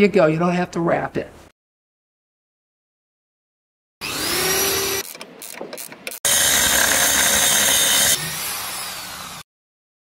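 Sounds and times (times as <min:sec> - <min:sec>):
cordless drill boring into wood: 0:04.0 - 0:05.1, 0:06.2 - 0:09.4.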